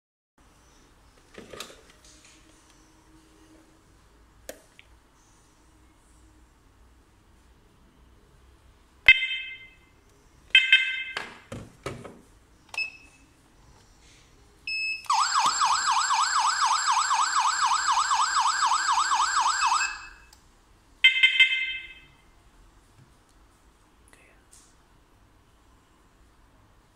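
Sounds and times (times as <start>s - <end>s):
alarm siren warbling: 15.1s - 20.2s.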